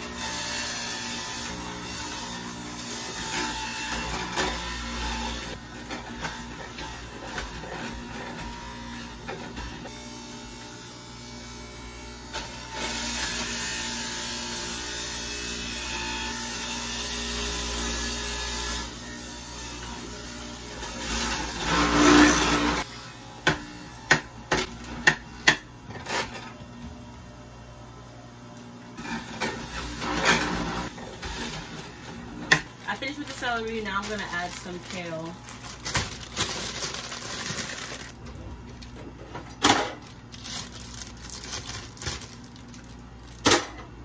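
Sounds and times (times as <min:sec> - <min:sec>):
juicer motor grinding: 0:00.0 - 0:25.3, 0:28.8 - 0:44.0
plastic bag crinkling: 0:31.4 - 0:43.5.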